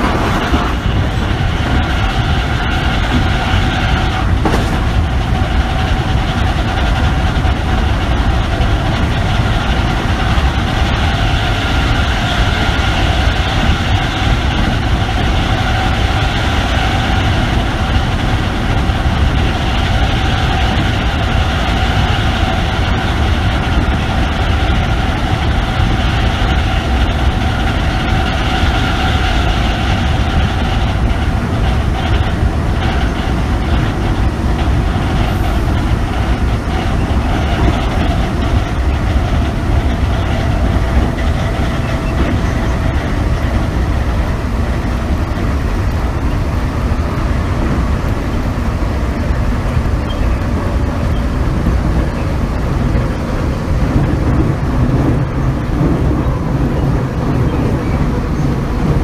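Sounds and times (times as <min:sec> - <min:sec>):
train wheels rumbling on track: 0:00.0 - 0:59.0.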